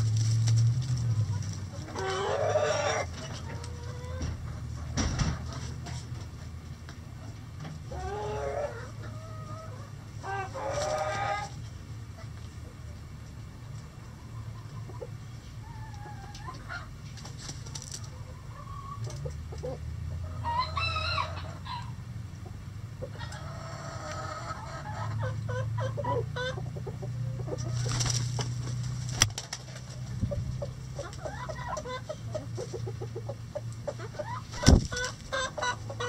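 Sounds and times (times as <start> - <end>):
chickens clucking: 0.0 - 36.0
rooster crowing: 20.4 - 22.0.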